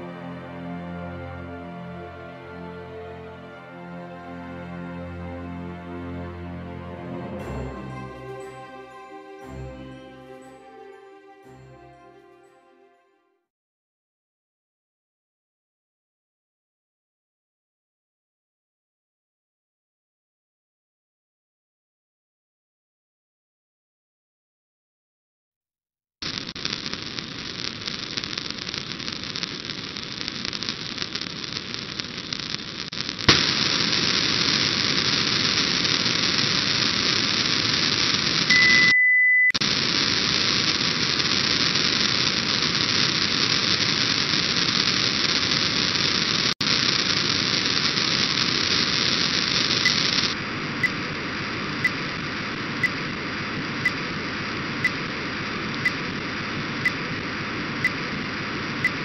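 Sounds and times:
radio receiver hiss and static: 0:26.2 - 0:38.6, 0:39.6 - 0:59.0
short steady beep: 0:38.5 - 0:39.6.

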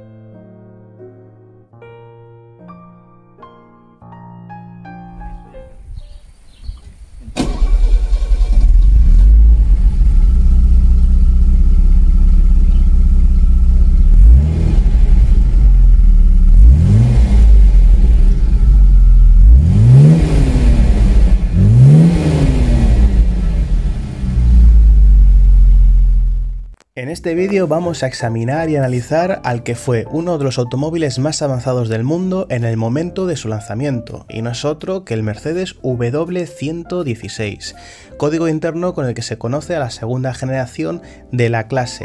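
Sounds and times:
car engine idling and revving: 0:07.6 - 0:26.8.

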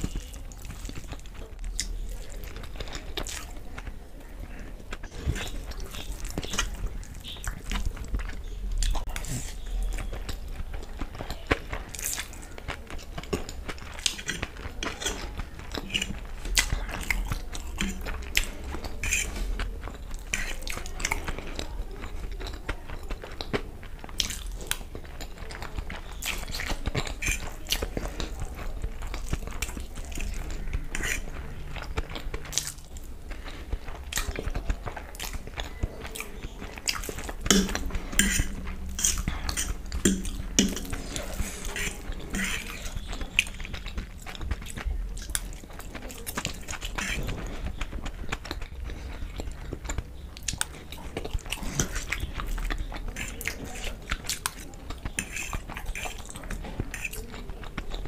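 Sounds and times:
person chewing noodles: 0:00.0 - 0:58.0.

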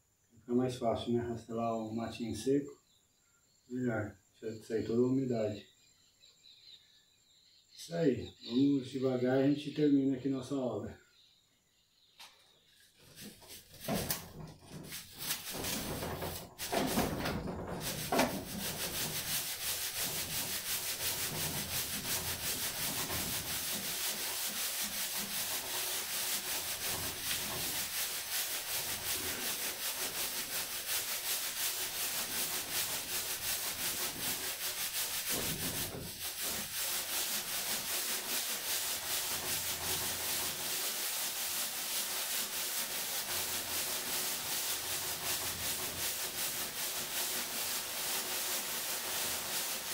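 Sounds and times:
sand rasping through sieve: 0:12.8 - 0:49.9.

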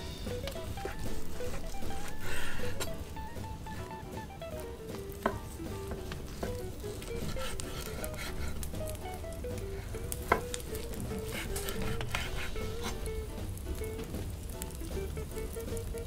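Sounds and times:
soft background melody: 0:00.0 - 0:16.0
knife slicing crackling crust: 0:00.4 - 0:03.9, 0:04.6 - 0:09.1, 0:09.8 - 0:13.1
knife knocking on cutting board: 0:04.8 - 0:08.9.

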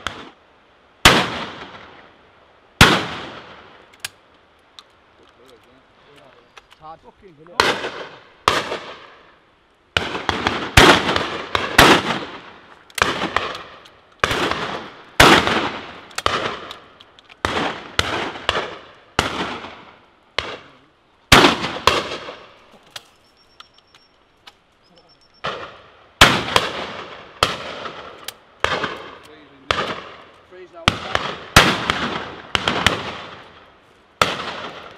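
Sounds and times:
shotgun shots echoing: 0:01.1 - 0:01.9, 0:02.8 - 0:03.8, 0:07.6 - 0:09.2, 0:10.0 - 0:22.5, 0:25.4 - 0:33.6, 0:34.2 - 0:34.9.

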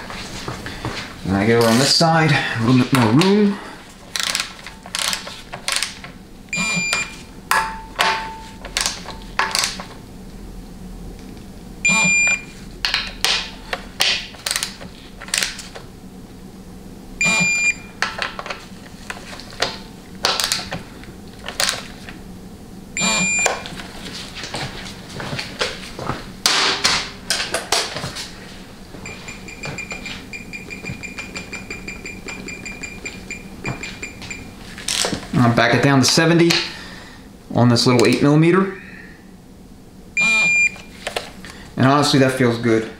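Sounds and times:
steady beep: 0:06.5 - 0:08.4, 0:11.8 - 0:12.5, 0:17.2 - 0:17.9, 0:23.0 - 0:23.6, 0:29.0 - 0:34.5, 0:40.2 - 0:40.8
short beep: 0:06.6 - 0:07.1, 0:11.9 - 0:12.4, 0:17.2 - 0:17.9, 0:23.0 - 0:23.6, 0:40.2 - 0:40.8.

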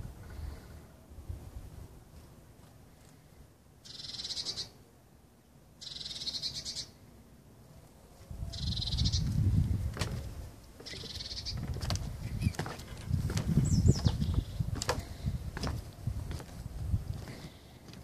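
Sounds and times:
wind rumbling on microphone: 0:08.2 - 0:17.6.

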